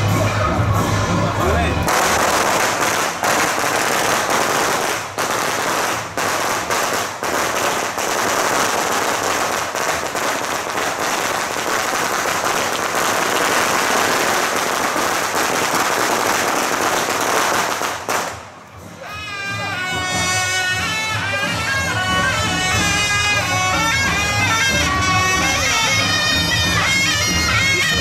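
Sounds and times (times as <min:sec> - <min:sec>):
firecrackers crackling: 0:01.3 - 0:19.0.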